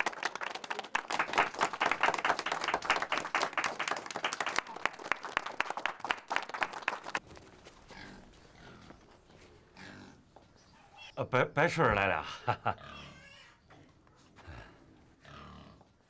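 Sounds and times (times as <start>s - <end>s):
small group clapping: 0.0s - 7.2s.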